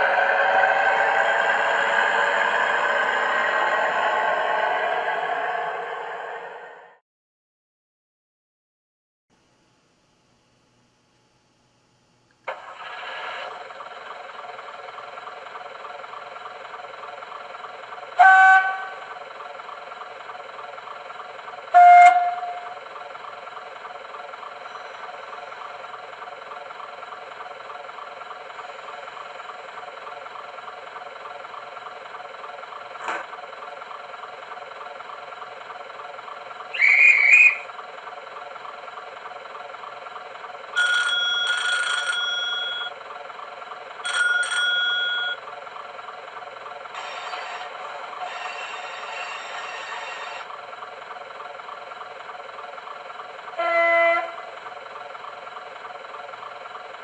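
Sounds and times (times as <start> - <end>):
diesel engine idling: 0.0 - 7.0, 12.6 - 57.0
train horn blasts: 18.2 - 19.0, 21.7 - 22.7, 48.2 - 50.3, 53.6 - 54.4.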